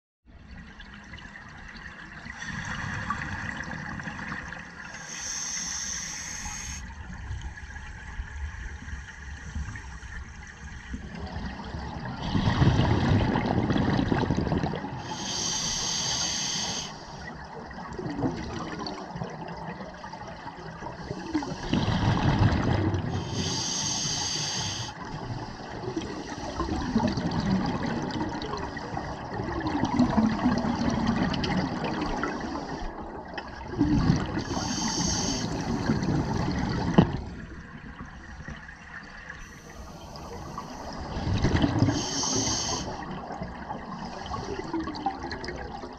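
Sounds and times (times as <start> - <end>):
exhaled air bubbling: 0.4 - 45.9
regulator hiss on inhale: 4.9 - 7.0, 15.1 - 17.3, 23.2 - 25.6, 32.4 - 32.9, 34.4 - 36.6, 39.4 - 41.1, 41.9 - 43.1.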